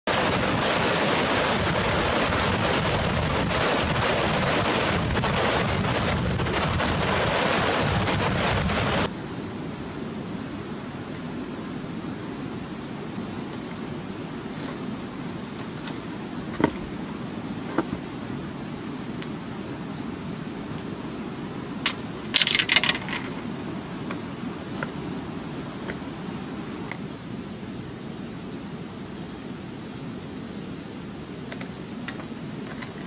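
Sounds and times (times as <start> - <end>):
river rapids rushing over rocks: 0.1 - 9.1
quiet outdoor background: 0.1 - 33.0.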